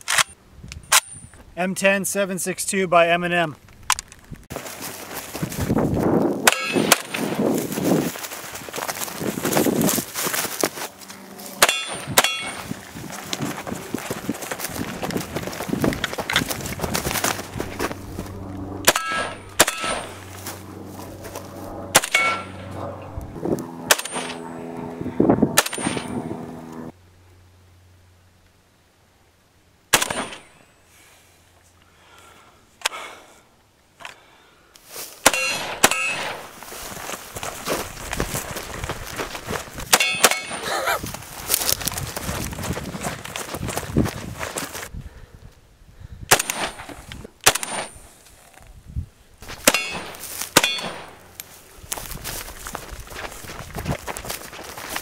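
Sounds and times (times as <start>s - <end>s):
metallic ringing: 6.5s - 7.1s, 11.6s - 12.8s, 17.6s - 21.0s, 21.9s - 24.8s, 25.6s - 26.9s, 39.9s - 40.7s, 49.7s - 51.4s
steel target clanging: 6.5s - 7.2s, 11.6s - 12.7s, 18.8s - 20.2s, 21.9s - 22.7s, 23.9s - 24.4s, 25.6s - 26.3s, 35.3s - 36.4s, 39.9s - 40.7s, 49.7s - 51.2s
rifle shots: 18.8s - 20.3s, 21.9s - 22.7s, 23.8s - 24.4s, 29.9s - 30.6s, 35.2s - 36.5s, 46.3s - 48.0s, 49.6s - 51.2s.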